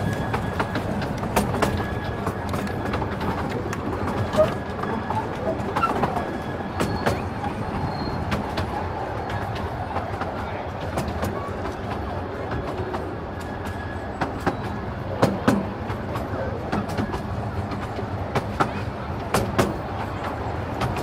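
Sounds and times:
railway coaches rumbling: 0.0s - 21.0s
wheels clicking over rail joints: 0.0s - 21.0s.

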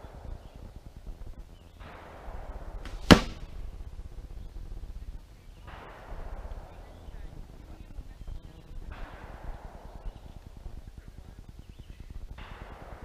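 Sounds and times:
arrow striking target: 2.8s - 3.6s.

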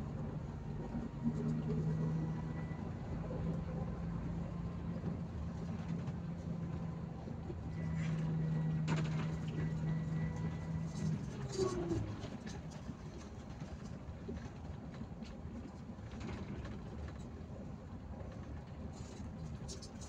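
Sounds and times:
road noise: 0.0s - 14.5s
bus engine droning: 0.0s - 20.0s.

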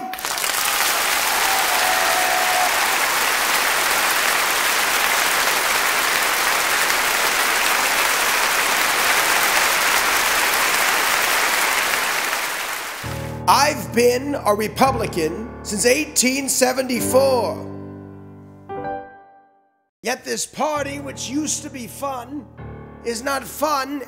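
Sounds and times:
crowd applauding: 0.0s - 13.2s.

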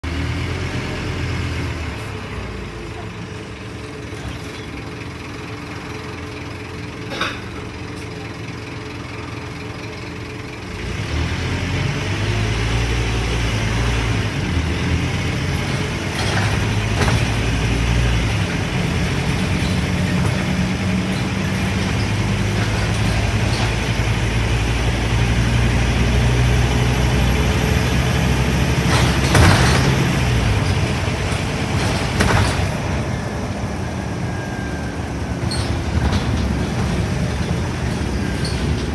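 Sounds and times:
bus diesel engine: 0.0s - 38.9s
bus body knocks and rattles: 14.8s - 25.3s, 28.6s - 34.0s, 35.3s - 38.9s.

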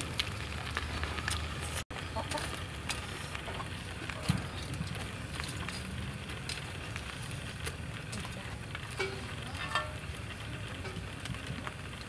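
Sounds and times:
fire crackling: 0.0s - 12.0s
prawns sizzling on a grill: 0.0s - 12.0s.

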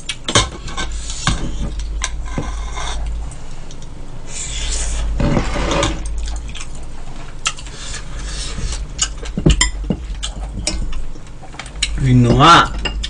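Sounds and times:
chopsticks and spoon clicking on bowls: 9.0s - 13.0s.

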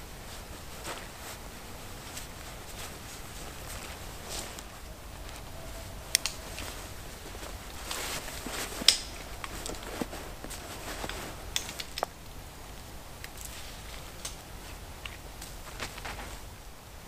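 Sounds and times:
fabric rustling: 0.0s - 17.0s
sharp clicks: 6.1s - 6.7s.

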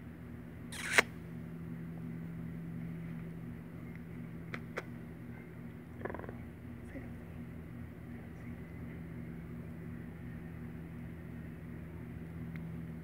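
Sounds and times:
kitten purring: 6.0s - 6.6s.

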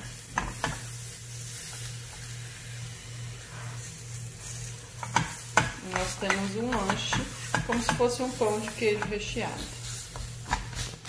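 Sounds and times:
dough sizzling in a pan: 0.0s - 11.0s
steady low hum: 0.0s - 11.0s
spatula tapping a pan: 0.3s - 0.9s, 5.0s - 10.8s.

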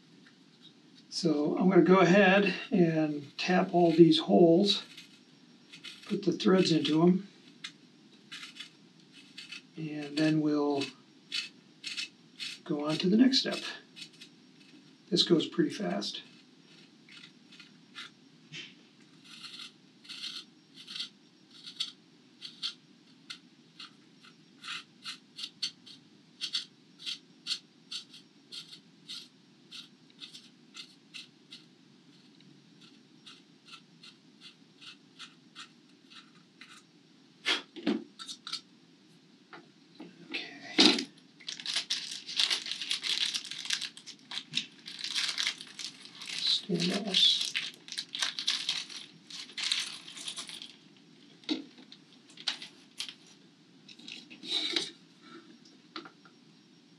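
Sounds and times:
plastic bag crinkling: 41.4s - 50.8s, 51.4s - 53.2s.

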